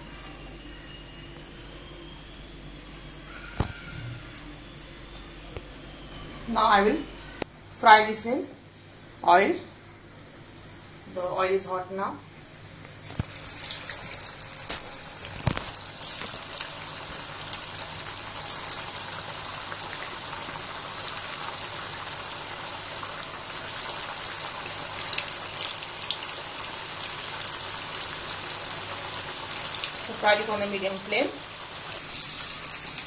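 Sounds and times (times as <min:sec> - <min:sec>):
hot oil sizzling: 0:13.0 - 0:33.0.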